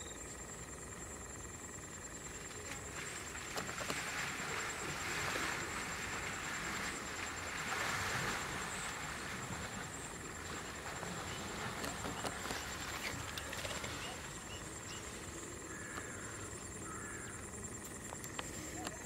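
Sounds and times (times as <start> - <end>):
elephant splashing through water: 2.7 - 15.3.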